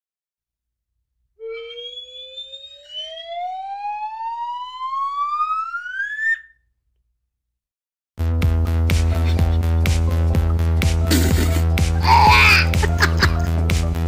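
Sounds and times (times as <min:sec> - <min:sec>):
rising whistle tone: 0:01.4 - 0:06.6.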